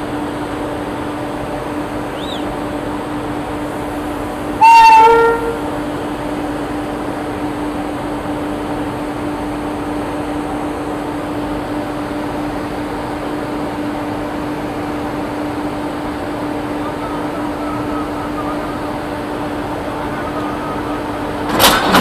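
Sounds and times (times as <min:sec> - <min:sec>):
locomotive machine hum: 0:00.0 - 0:22.0
train horn blast: 0:04.6 - 0:05.8.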